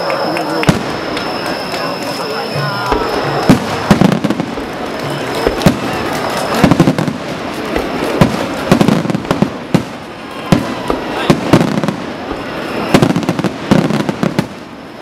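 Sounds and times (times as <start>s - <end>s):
firework crackling: 0.0s - 15.0s
firework shells bursting: 0.1s - 14.9s.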